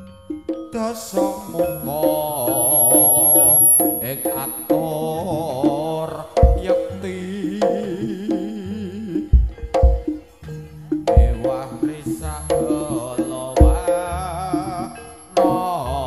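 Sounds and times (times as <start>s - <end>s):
drums and percussion: 0.0s - 16.0s
gamelan lead melody: 0.0s - 16.0s
deep drum stroke: 6.4s - 6.9s, 9.3s - 10.2s, 11.0s - 13.0s, 13.6s - 14.1s.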